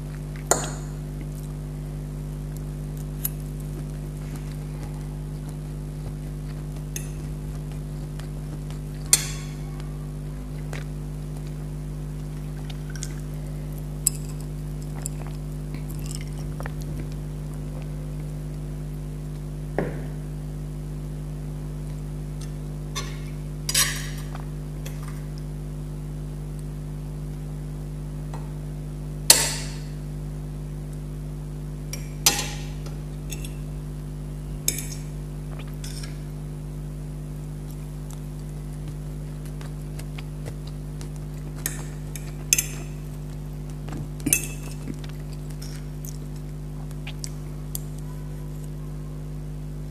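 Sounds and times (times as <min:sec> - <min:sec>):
low electrical hum: 0:00.0 - 0:49.9.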